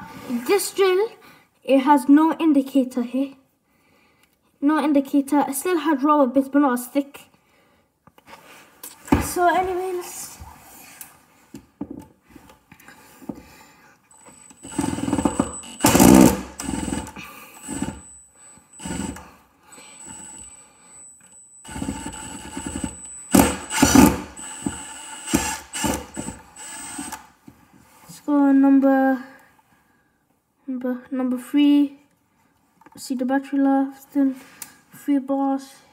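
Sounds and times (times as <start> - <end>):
impact driver driving screws: 14.2 - 18.2, 18.8 - 19.2, 19.9 - 20.5, 21.2 - 27.3.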